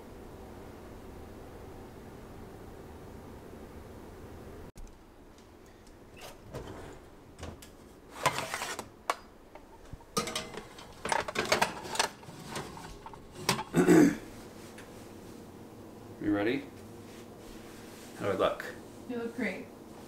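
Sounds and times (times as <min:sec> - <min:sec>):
metal pan clattering and scraping: 0:08.1 - 0:08.8, 0:09.6 - 0:13.8.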